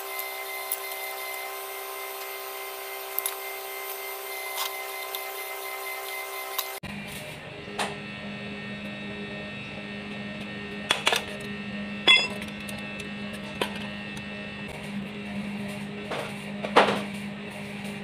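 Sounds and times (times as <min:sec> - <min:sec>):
metal tools clinking: 0:12.1 - 0:12.4
low hum: 0:12.1 - 0:12.5
ringing metal clank: 0:12.1 - 0:12.5.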